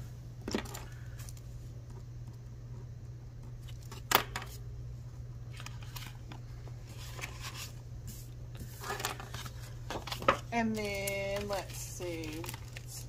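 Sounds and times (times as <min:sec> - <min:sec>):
low steady hum: 0:00.0 - 0:13.0
plastic binder sleeves rustling: 0:05.5 - 0:13.0.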